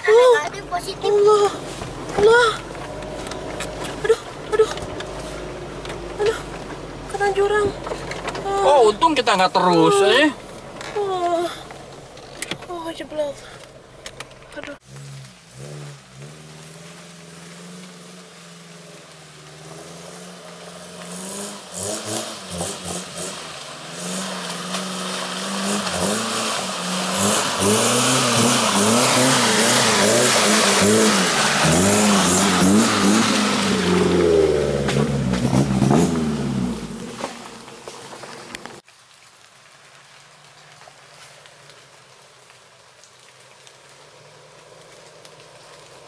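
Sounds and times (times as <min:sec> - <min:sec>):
tyres spinning in mud: 0:00.0 - 0:46.0
suv engine revving hard: 0:14.9 - 0:18.8, 0:19.4 - 0:37.7.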